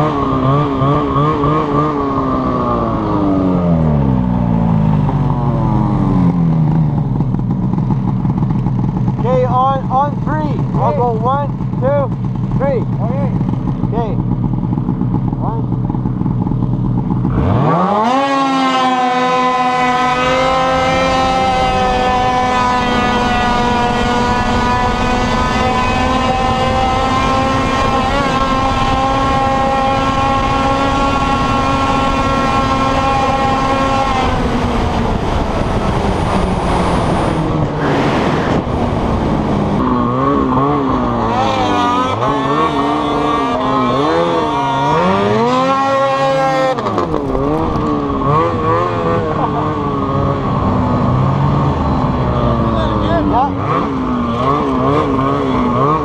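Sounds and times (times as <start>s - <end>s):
snowmobile engine revving: 0.0s - 56.0s.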